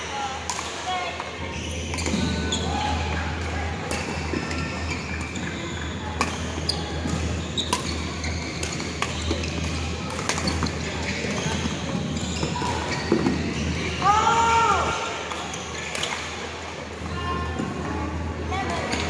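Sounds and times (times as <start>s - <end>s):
murmur of voices: 0.0s - 19.0s
shoes squeaking on court floor: 1.4s - 3.0s, 4.1s - 14.0s
rackets smacking shuttlecocks: 6.2s - 10.8s.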